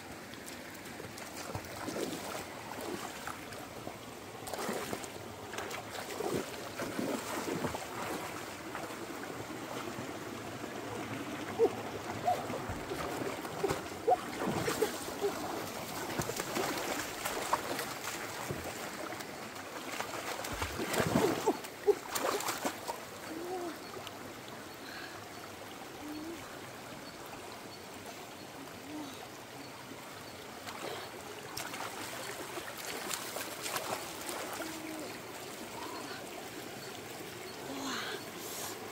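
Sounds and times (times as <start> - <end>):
rocky stream running: 0.0 - 38.9
splashing in water: 0.4 - 3.5, 4.4 - 8.9, 11.6 - 23.0, 30.6 - 36.2.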